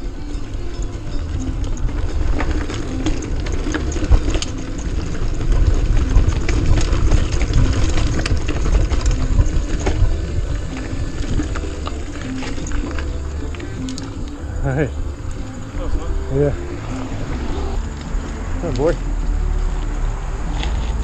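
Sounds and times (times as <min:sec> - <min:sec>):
bike clicks and rattles: 0:00.0 - 0:21.0.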